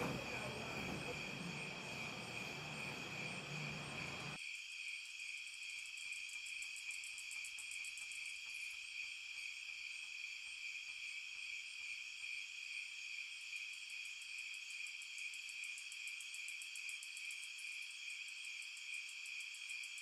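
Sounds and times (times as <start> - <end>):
low background hiss: 0.0 - 4.4
crickets trilling: 0.0 - 20.0
pulsed cricket chirping: 0.0 - 20.0.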